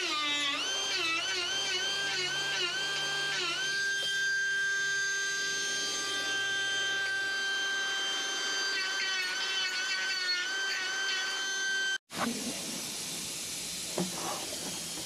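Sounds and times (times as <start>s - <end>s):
air grinder whining on metal: 0.0s - 12.0s.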